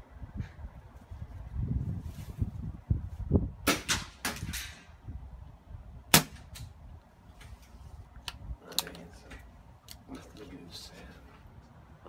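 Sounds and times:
air rifle shot crack: 3.6s - 4.8s, 6.1s - 6.7s.

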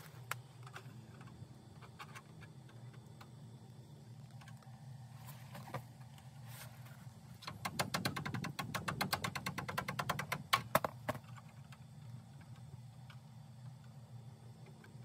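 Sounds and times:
steady low hum: 0.0s - 15.0s
rapid sharp clicks: 7.4s - 11.8s.

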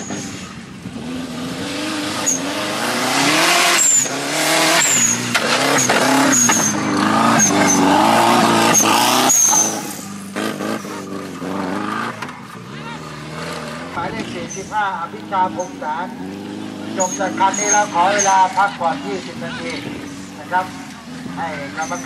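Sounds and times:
buggy engine revving: 0.0s - 22.0s.

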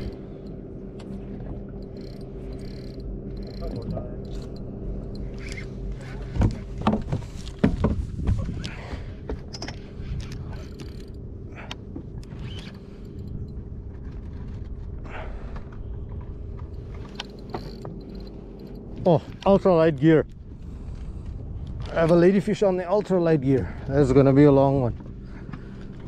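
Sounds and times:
boat engine running: 0.0s - 26.0s
fishing reel clicks: 1.8s - 5.7s.

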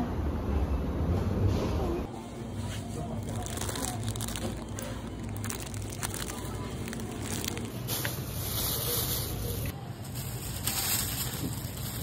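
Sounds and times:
plastic bags crinkling: 3.0s - 12.0s.

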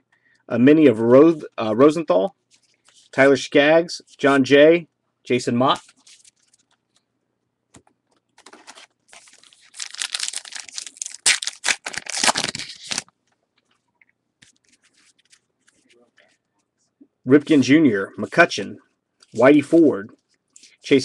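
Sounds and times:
cards being handled: 7.7s - 13.8s
wrapper tearing and crinkling: 8.4s - 13.1s.

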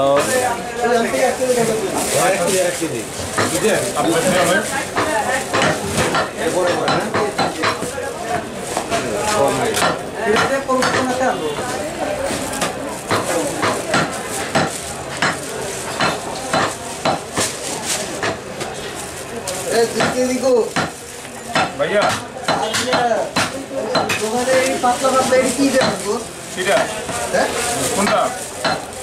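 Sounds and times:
cleaver chopping meat on wood: 9.8s - 11.2s, 13.1s - 15.4s, 20.0s - 24.2s.

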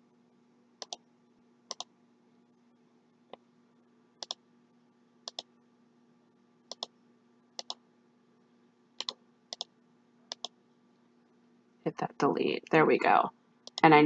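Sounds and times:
faint steady hum: 0.0s - 14.0s
computer mouse clicking: 0.8s - 1.0s, 4.2s - 4.4s, 5.3s - 5.5s, 6.7s - 6.9s, 7.6s - 7.8s, 9.0s - 9.7s, 10.3s - 10.6s, 13.6s - 13.8s.

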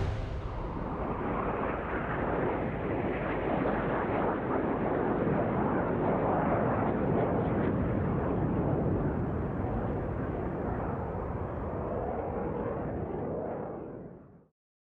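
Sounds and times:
jet engine roar: 0.0s - 7.5s.

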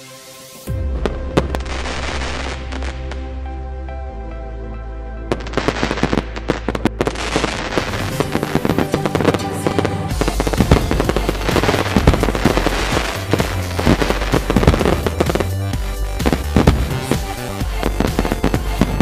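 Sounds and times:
fireworks bursting and crackling: 1.0s - 3.2s, 5.3s - 19.0s
electronic dance music: 10.1s - 19.0s.

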